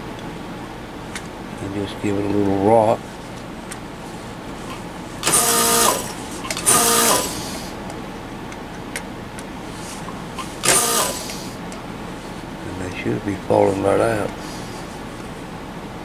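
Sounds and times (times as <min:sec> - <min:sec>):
desoldering pump suction bursts: 0:04.0 - 0:07.8, 0:09.7 - 0:12.3.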